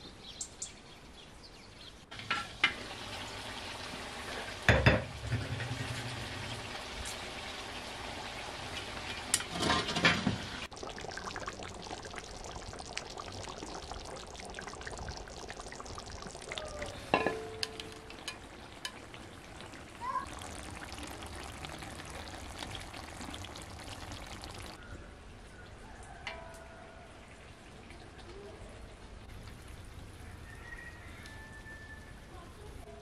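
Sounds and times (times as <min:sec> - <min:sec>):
sauce bubbling and sizzling: 0:02.1 - 0:24.8
metal lid clattering: 0:09.4 - 0:10.3, 0:17.1 - 0:18.4.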